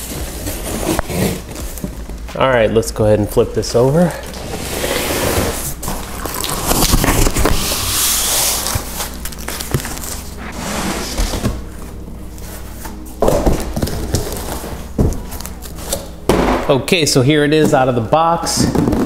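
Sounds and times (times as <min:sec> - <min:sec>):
cardboard scraping and rubbing: 0:00.0 - 0:01.8, 0:04.4 - 0:16.2
cardboard box thumps: 0:16.3 - 0:16.7.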